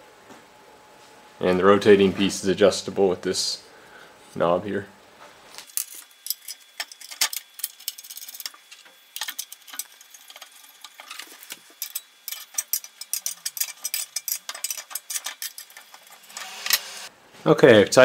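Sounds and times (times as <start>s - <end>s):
hand tool clicking on bolts: 5.7s - 17.0s.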